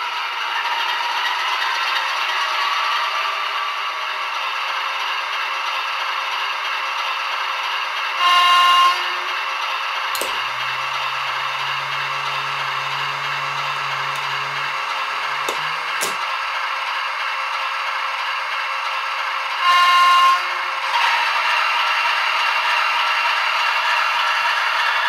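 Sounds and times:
model train rattling along track: 0:00.0 - 0:25.0
train horn blast: 0:08.2 - 0:09.5, 0:10.2 - 0:16.2, 0:19.6 - 0:21.2
click: 0:10.2 - 0:16.3
steady low hum: 0:10.2 - 0:16.3.

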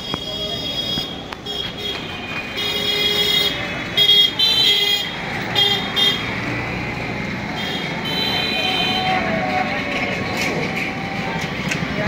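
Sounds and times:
rickshaw horn beeping: 0:00.0 - 0:06.3
crowd hubbub: 0:00.0 - 0:12.0.

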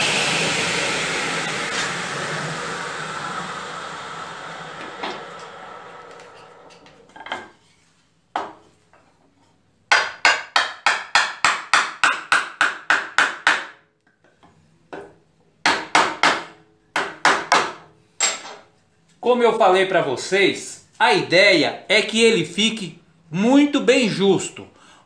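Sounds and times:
hammer tapping wood: 0:09.9 - 0:13.7.

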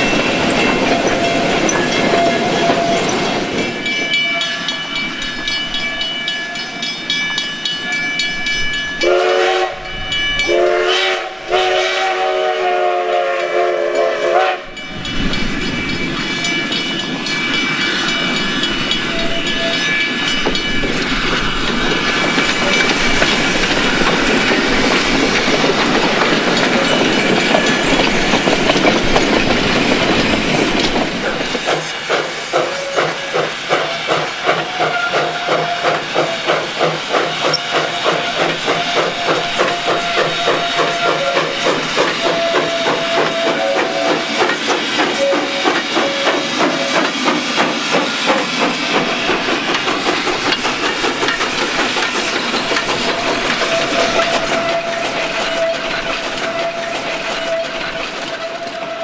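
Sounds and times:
train cars rolling over rails: 0:00.0 - 0:10.7, 0:14.4 - 0:59.0
steam locomotive working: 0:00.0 - 0:59.0
steam whistle: 0:09.0 - 0:14.8, 0:32.6 - 0:36.5, 0:37.2 - 0:44.5, 0:45.1 - 0:47.1, 0:53.0 - 0:59.0.

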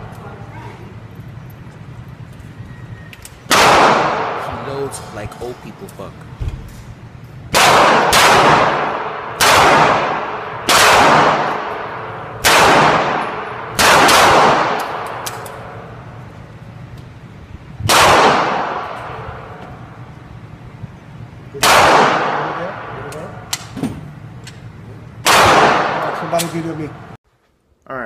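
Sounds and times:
pistol shots echoing indoors: 0:03.5 - 0:04.9, 0:07.5 - 0:15.9, 0:17.9 - 0:19.6, 0:21.6 - 0:23.8, 0:25.2 - 0:26.6.

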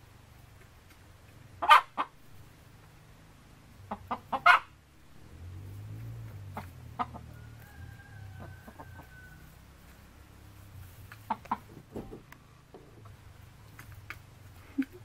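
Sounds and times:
hens clucking: 0:01.2 - 0:03.0, 0:03.7 - 0:04.9, 0:06.5 - 0:15.0.

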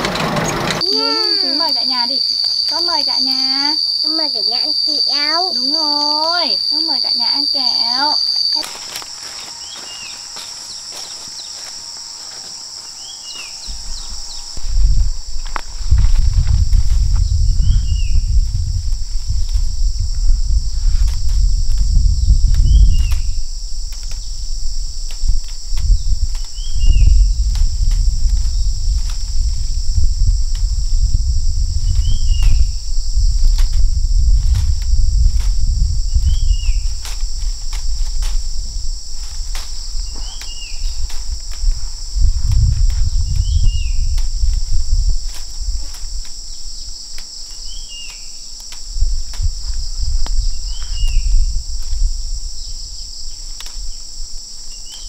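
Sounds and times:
high-pitched insect chorus: 0:00.8 - 0:55.0
low rumble: 0:13.7 - 0:46.3.

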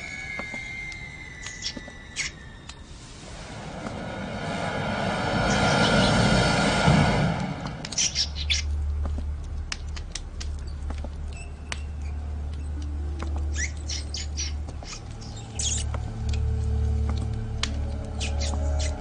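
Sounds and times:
small animal squeaking: 0:00.0 - 0:02.7, 0:13.3 - 0:15.9, 0:18.2 - 0:19.0
low steady hum: 0:02.6 - 0:19.0.

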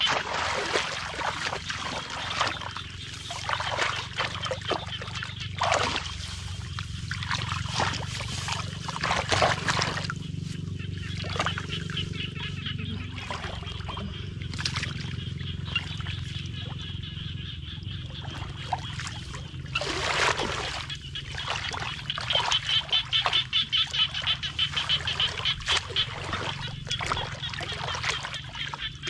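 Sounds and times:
chorus of calling animals: 0:00.0 - 0:29.0
muddy water sloshing and splashing: 0:00.0 - 0:29.0.

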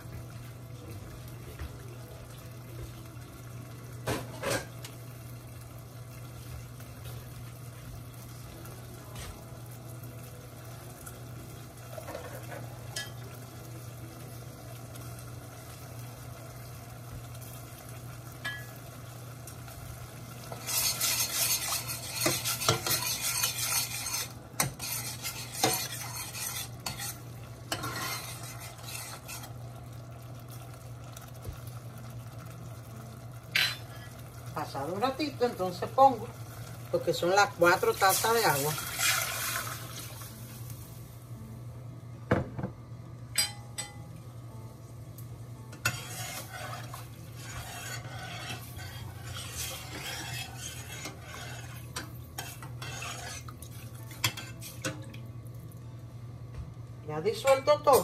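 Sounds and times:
sauce simmering in a saucepan: 0:04.7 - 0:41.3, 0:45.9 - 0:56.4
metal spoon scraping and clinking: 0:20.5 - 0:29.5, 0:45.8 - 0:53.5.

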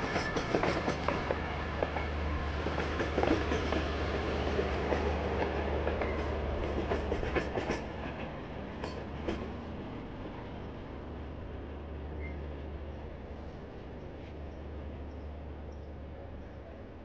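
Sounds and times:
train wheels clattering: 0:04.5 - 0:09.5.

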